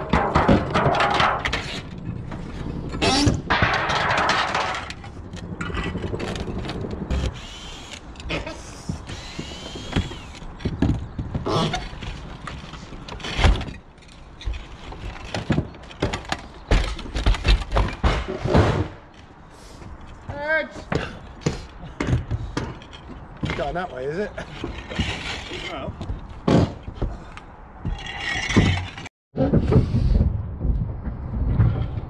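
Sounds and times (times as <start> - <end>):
roof tiles clattering: 0.0 - 6.6, 20.9 - 29.6
sharp knocks and clunks: 0.0 - 7.5, 8.2 - 19.2, 19.8 - 32.0.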